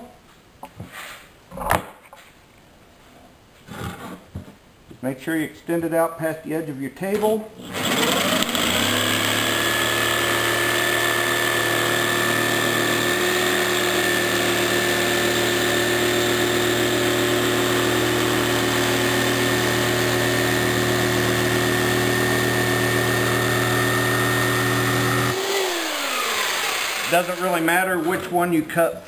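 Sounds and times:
jigsaw cutting wood: 7.6s - 28.3s.

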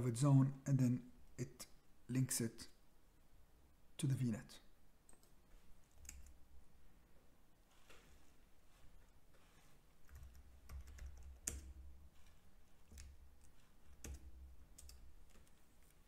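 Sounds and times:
computer keyboard typing: 5.9s - 6.4s, 10.0s - 16.0s.

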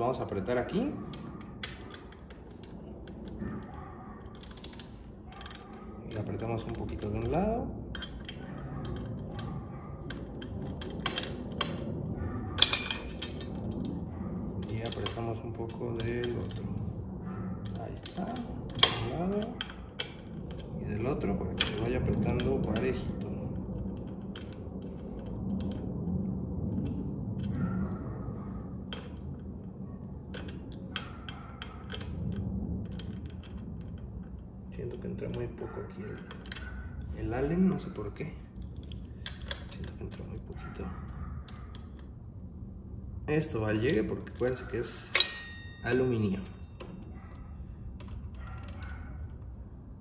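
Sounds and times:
steady low hum: 0.0s - 50.0s
allen key clicking on bolts: 1.1s - 11.8s, 43.9s - 47.0s, 48.0s - 49.4s
hex key clicking on bolt: 48.0s - 49.4s.

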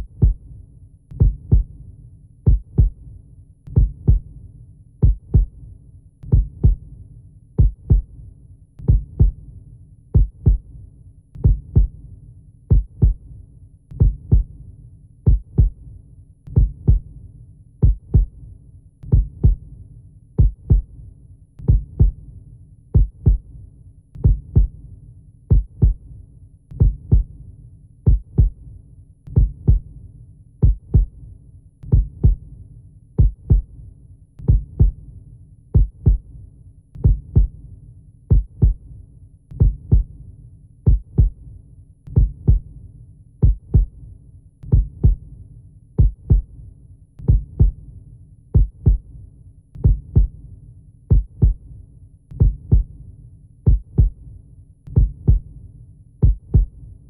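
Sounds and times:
heartbeat thumps: 0.0s - 0.4s, 1.2s - 1.7s, 2.5s - 3.0s, 3.7s - 4.3s, 5.0s - 5.6s, 6.3s - 6.8s, 7.6s - 8.1s, 8.8s - 9.4s, 10.2s - 10.7s, 11.4s - 12.0s, 12.7s - 13.2s, 14.0s - 14.5s, 15.3s - 15.8s, 16.5s - 17.1s, 17.8s - 18.4s, 19.1s - 19.6s, 20.4s - 20.9s, 21.6s - 22.2s, 23.0s - 23.5s, 24.2s - 24.8s, 25.5s - 26.0s, 26.8s - 27.3s, 28.1s - 28.6s, 29.3s - 29.9s, 30.6s - 31.2s, 31.9s - 32.4s, 33.2s - 33.7s, 34.4s - 35.0s, 35.8s - 36.3s, 37.0s - 37.6s, 38.3s - 38.8s, 39.6s - 40.1s, 40.9s - 41.4s, 42.1s - 42.7s, 43.4s - 44.0s, 44.7s - 45.2s, 46.0s - 46.5s, 47.2s - 47.8s, 48.6s - 49.1s, 49.8s - 50.4s, 51.1s - 51.6s, 52.4s - 52.9s, 53.7s - 54.2s, 54.9s - 55.5s, 56.2s - 56.8s.

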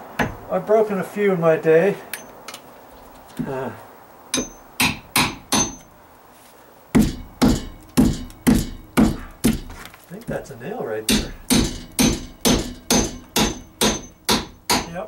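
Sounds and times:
hammer striking plywood: 7.0s - 9.8s.

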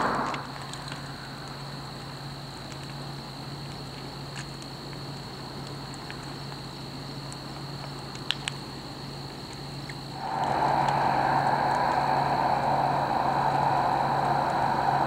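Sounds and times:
fire crackling and popping: 0.1s - 15.0s
low hum: 10.2s - 15.0s.

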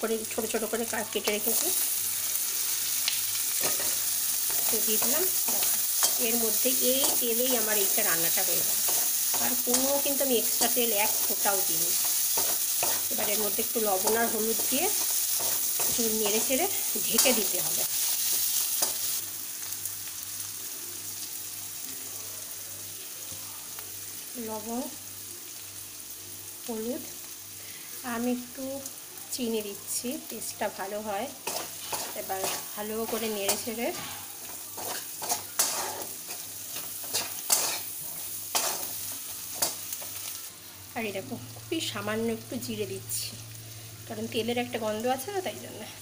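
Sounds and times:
vegetables sizzling in a wok: 0.0s - 46.0s
spatula scraping a pan: 8.7s - 13.4s, 31.4s - 40.2s.

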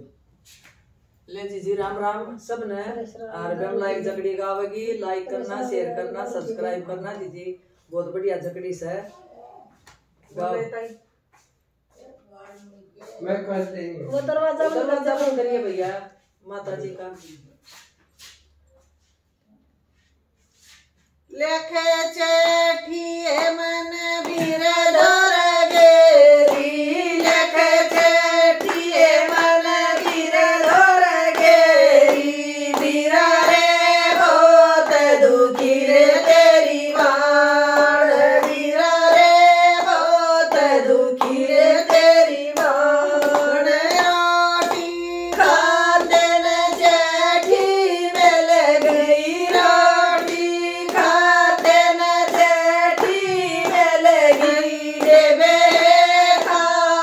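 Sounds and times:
women singing folk song: 21.3s - 57.0s
hand claps: 22.9s - 57.0s.

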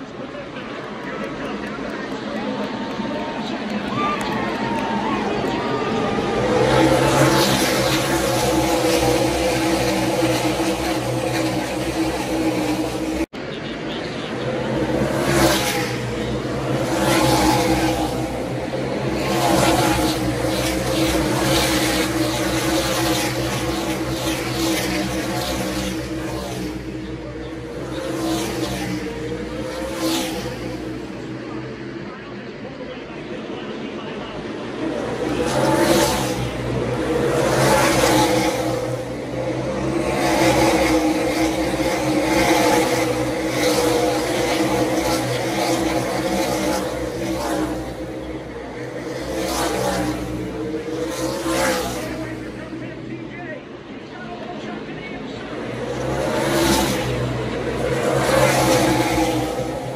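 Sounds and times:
race car engines roaring: 0.0s - 59.9s.

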